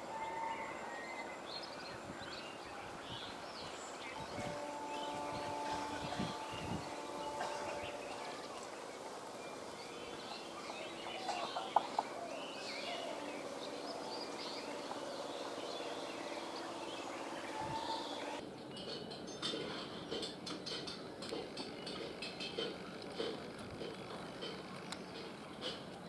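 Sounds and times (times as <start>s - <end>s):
birds chirping: 0.0s - 19.1s
distant train hum: 0.0s - 26.0s.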